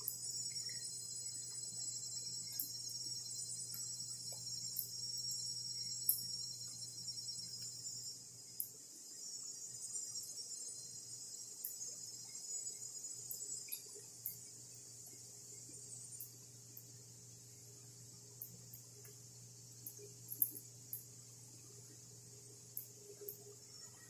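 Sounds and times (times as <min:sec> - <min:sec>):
insects droning shrilly: 0:00.0 - 0:17.0
faint low hum: 0:00.0 - 0:24.0.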